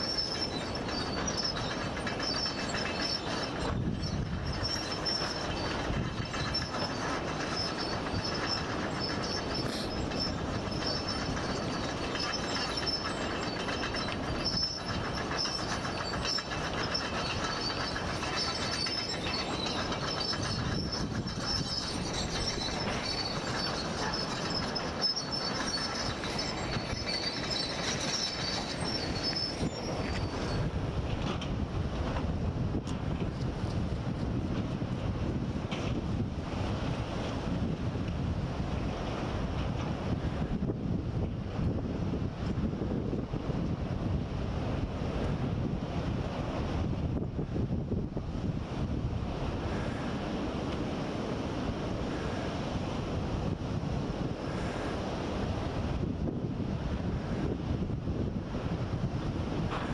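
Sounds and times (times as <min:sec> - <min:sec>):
ocean surf breaking: 0:44.2 - 0:59.9.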